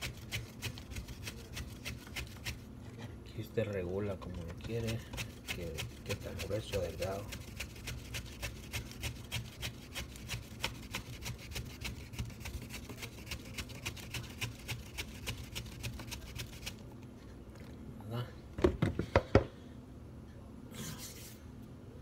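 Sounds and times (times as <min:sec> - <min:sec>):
banana rasping on mandoline blade: 0:04.7 - 0:16.8.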